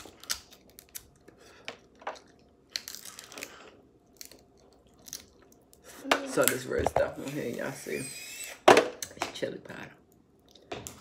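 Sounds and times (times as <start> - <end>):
chewing crab meat: 0.0 - 6.0
crab shells crunching and clicking: 0.0 - 6.8.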